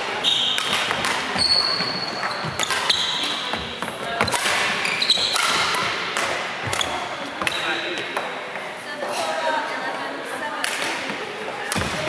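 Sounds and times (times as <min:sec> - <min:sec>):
echoing background chatter: 0:00.0 - 0:12.0
shoes squealing on wooden floor: 0:00.2 - 0:00.7, 0:01.3 - 0:05.8
racket striking shuttlecock: 0:00.5 - 0:08.3.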